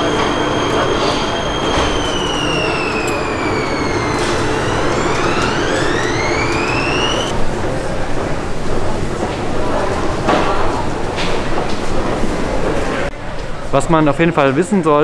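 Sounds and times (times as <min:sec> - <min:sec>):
electric train motor whining: 0:00.0 - 0:07.4
platform rumble: 0:00.0 - 0:09.3.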